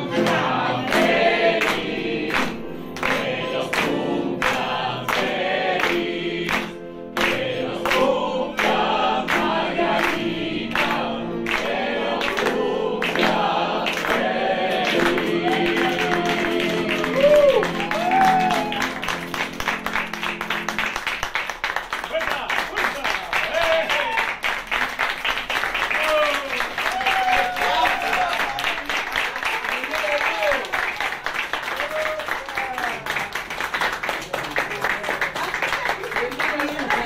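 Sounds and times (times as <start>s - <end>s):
group singing: 0.0s - 18.8s
hands clapping in time: 13.9s - 37.0s.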